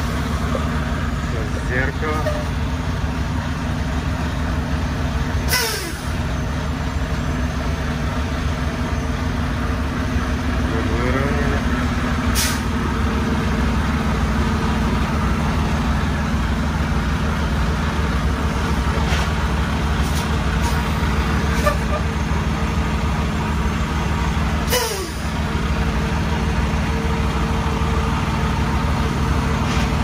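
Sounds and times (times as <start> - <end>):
truck diesel engine running: 0.0 - 30.0
air brake hisses: 5.5 - 6.1, 12.3 - 12.7, 24.7 - 25.2.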